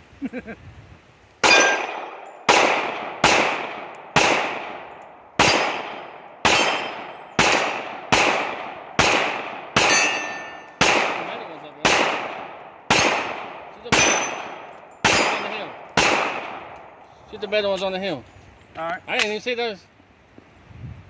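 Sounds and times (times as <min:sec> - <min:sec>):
pistol shots echoing: 0:01.4 - 0:17.0.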